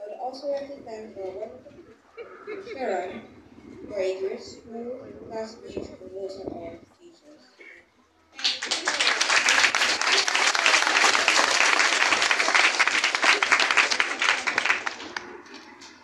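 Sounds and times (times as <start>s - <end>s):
audience applauding: 8.4s - 16.0s.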